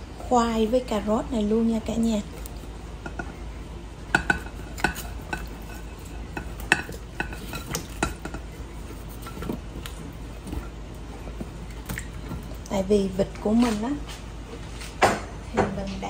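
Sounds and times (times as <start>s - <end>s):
chopsticks tapping a glass bowl: 4.1s - 5.8s, 6.4s - 8.5s.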